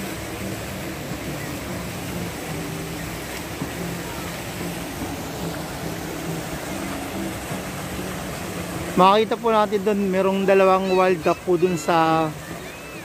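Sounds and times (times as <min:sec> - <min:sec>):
faint low drone: 0:00.0 - 0:09.3
fountain jets splashing: 0:00.0 - 0:13.0.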